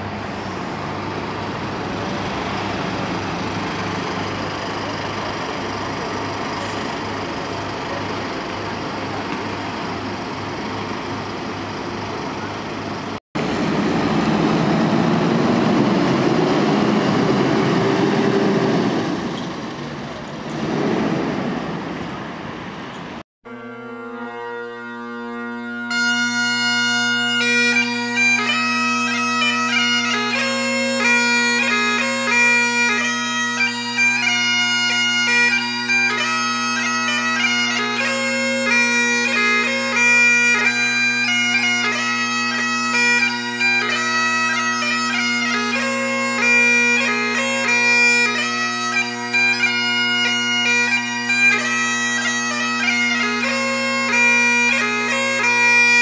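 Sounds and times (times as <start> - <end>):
bagpipe drones: 23.4 - 56.0
bagpipe melody: 23.4 - 56.0.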